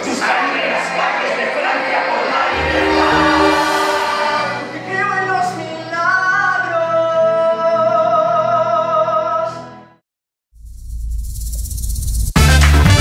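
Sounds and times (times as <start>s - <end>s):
music with singing voices: 0.0s - 9.8s
single voice holding wavering notes: 2.5s - 4.9s.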